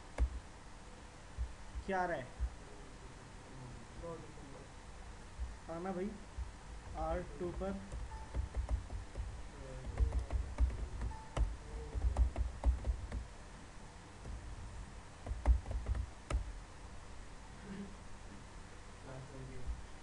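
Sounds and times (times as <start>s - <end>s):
computer keyboard typing: 6.9s - 13.3s, 15.2s - 16.5s.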